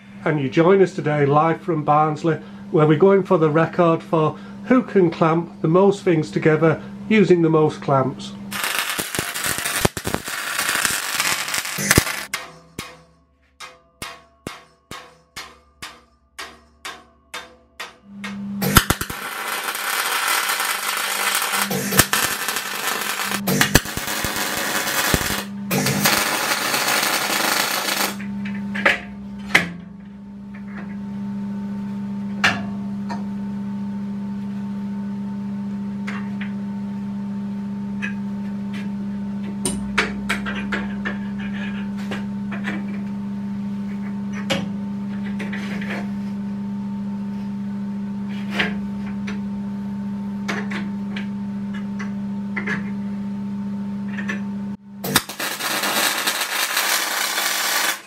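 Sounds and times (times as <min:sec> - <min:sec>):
low hum: 0:08.4 - 0:31.4
welder crackling hiss: 0:08.5 - 0:12.3, 0:18.6 - 0:28.2, 0:55.1 - 0:58.0.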